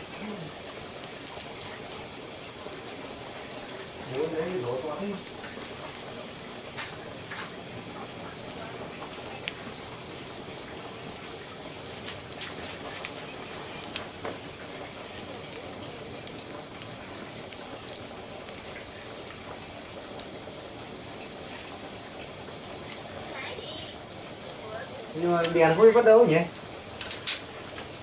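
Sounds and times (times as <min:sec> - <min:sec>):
crickets chirping: 0:00.0 - 0:28.0
wood fire crackling: 0:00.0 - 0:28.0.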